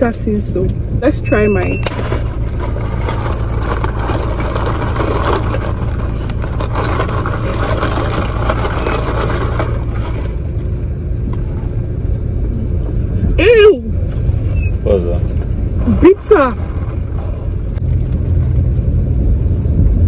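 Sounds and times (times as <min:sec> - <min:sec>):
car engine idling: 0:00.0 - 0:20.0
straw rattling through ice: 0:01.9 - 0:10.4.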